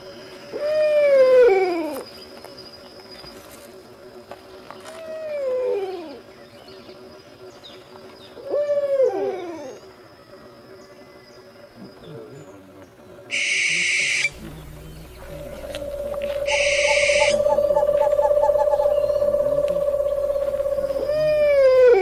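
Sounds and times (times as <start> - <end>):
owl hooting: 8.4 - 9.8, 13.3 - 22.0
loud high-pitched buzz: 14.3 - 22.0.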